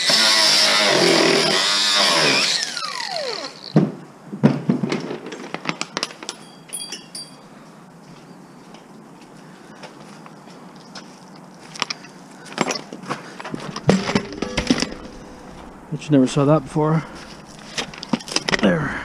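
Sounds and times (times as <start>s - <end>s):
power tool motor whining: 0.0s - 3.8s
metallic clinks and knocks: 6.2s - 7.5s, 13.5s - 15.9s.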